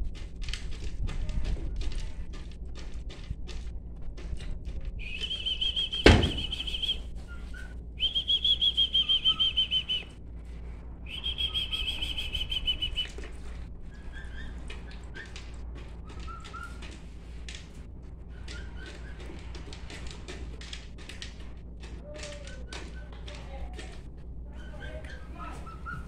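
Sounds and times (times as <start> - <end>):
emus trilled whistles: 5.0 - 7.4, 8.0 - 10.1, 11.1 - 13.2
sharp knock: 6.0 - 6.7.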